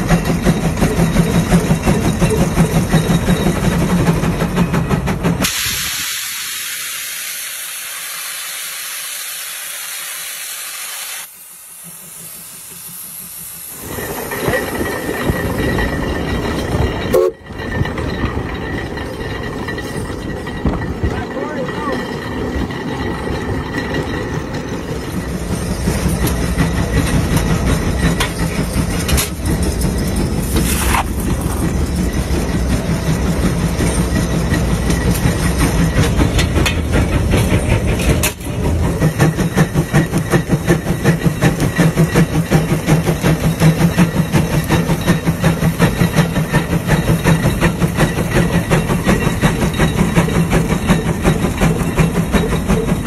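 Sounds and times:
steam engine exhaust chuffing: 25.1 - 53.0.

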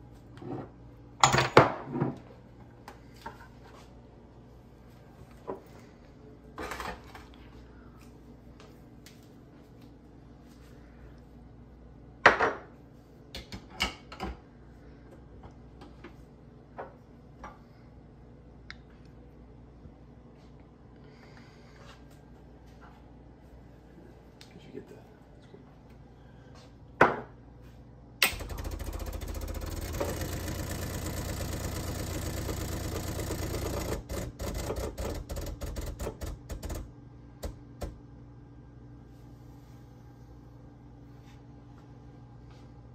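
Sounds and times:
espresso machine pump buzzing: 28.3 - 36.8.

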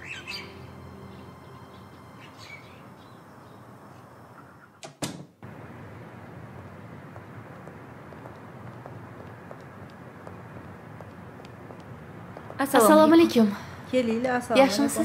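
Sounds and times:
outdoor street hum: 0.0 - 15.0
door banging shut: 4.8 - 5.4.

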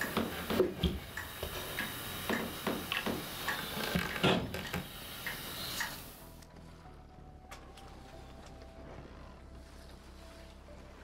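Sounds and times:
steady hiss: 0.0 - 6.4.

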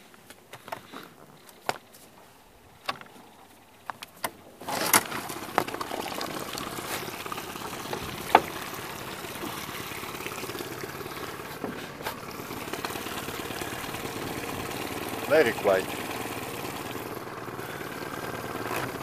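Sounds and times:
outboard motor running quietly: 0.0 - 19.0
water splashing against hull: 4.6 - 17.2.

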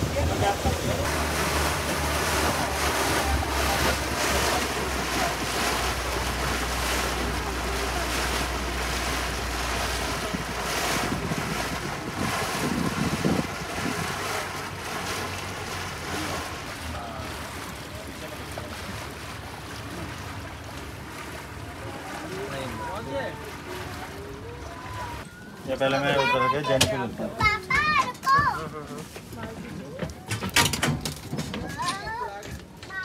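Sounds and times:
wind buffeting microphone: 0.0 - 16.8
boat motor hum: 0.0 - 33.0
water washing past boat: 0.0 - 33.0.

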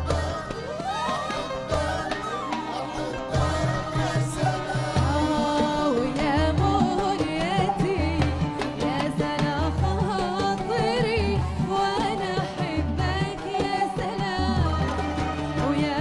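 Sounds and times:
live band: 0.0 - 16.0
percussion strikes: 0.0 - 16.0
woman singing: 0.0 - 16.0.

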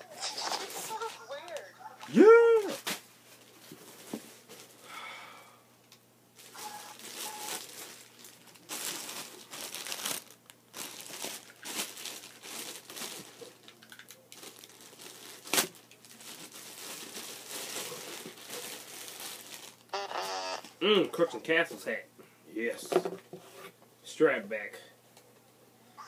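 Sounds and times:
plastic bag crinkling: 6.4 - 20.8.

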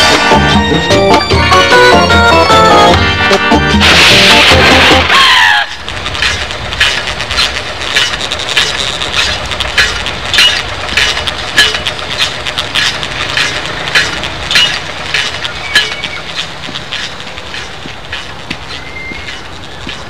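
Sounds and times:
sharp rhythmic clicks: 5.7 - 20.0.

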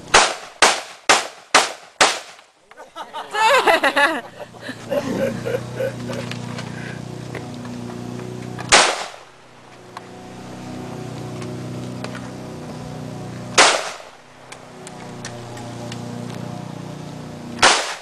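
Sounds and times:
rifle shots with echo: 0.1 - 2.4, 8.7 - 9.3, 13.6 - 14.2, 17.6 - 18.0.

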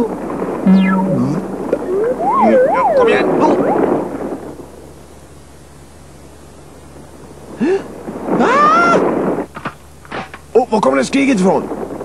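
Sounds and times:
short rising sound: 0.7 - 4.1.

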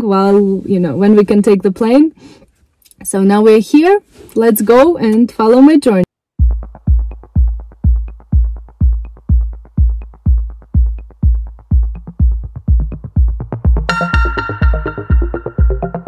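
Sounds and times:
electronic music with kick drum: 6.4 - 16.0.

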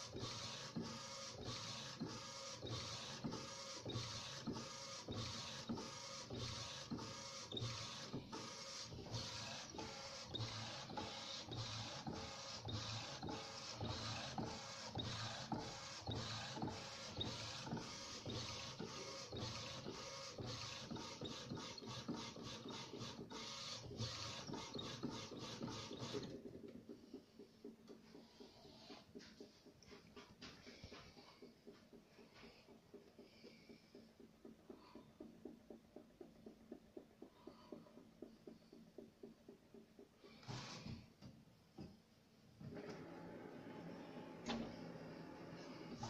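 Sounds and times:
printer carriage shuttling and whirring: 0.0 - 27.2, 42.6 - 46.0.

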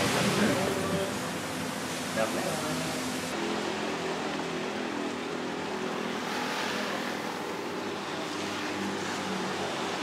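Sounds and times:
steady rushing background noise: 0.0 - 10.0.

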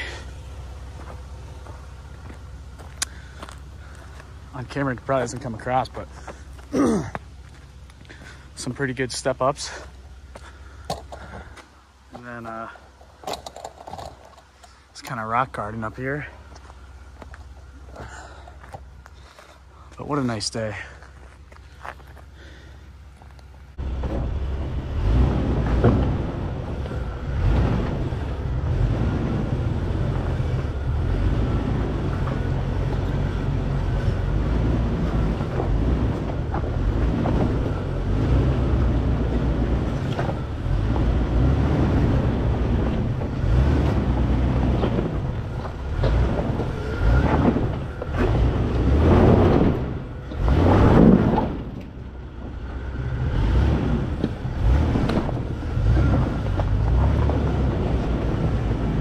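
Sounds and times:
engine rumbling at low speed: 0.0 - 59.0.

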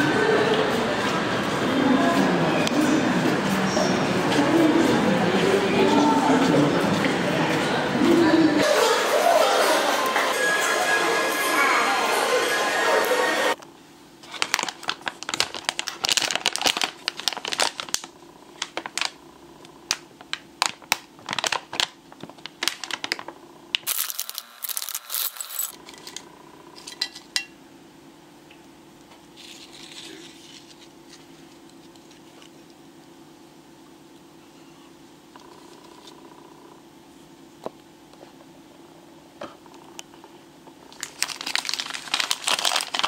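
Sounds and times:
chip bag crinkling: 14.2 - 19.2, 19.9 - 25.7, 40.9 - 43.0
chips pouring onto a plate: 23.9 - 25.7, 41.0 - 43.0.

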